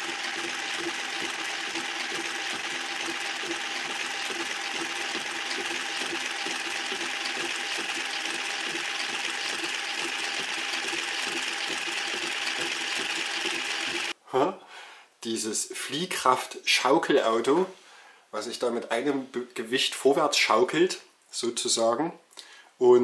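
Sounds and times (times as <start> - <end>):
electric motor whirring with rattling: 0.0 - 14.2.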